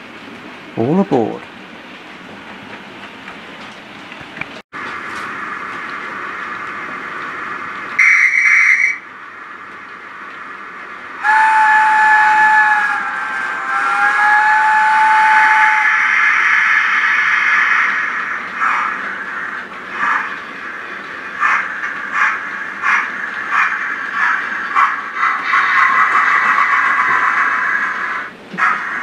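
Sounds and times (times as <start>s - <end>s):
steam hissing: 5.0s - 29.0s
short high whistle: 8.0s - 9.0s.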